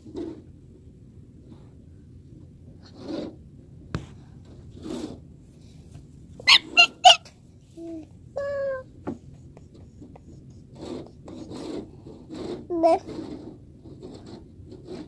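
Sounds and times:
high whining cry: 6.5 - 7.3
loud sharp yelps: 6.5 - 7.3.

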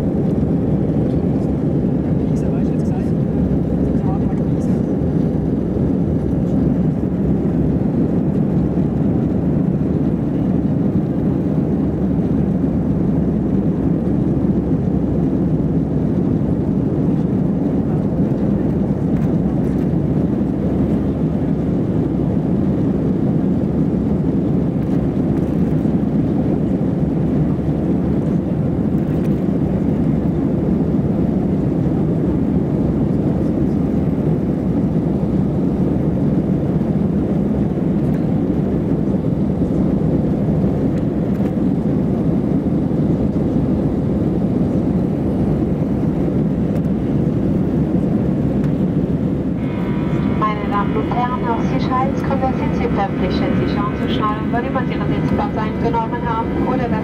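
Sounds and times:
jet engines roaring: 0.0 - 57.0
rushing air: 48.3 - 57.0.

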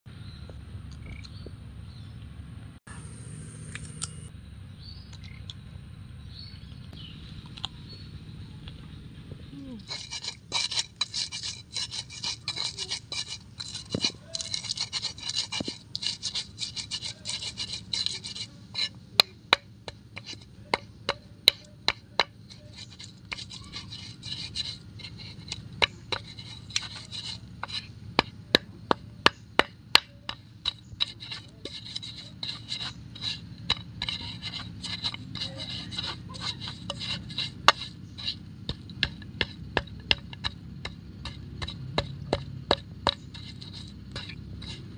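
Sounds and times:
stone pestle scraping clay mortar: 9.6 - 44.9
pestle knocking mortar: 9.9 - 44.9.

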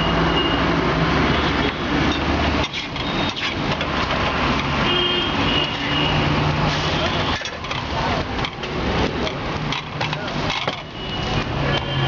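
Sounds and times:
street traffic hiss: 0.0 - 12.0.

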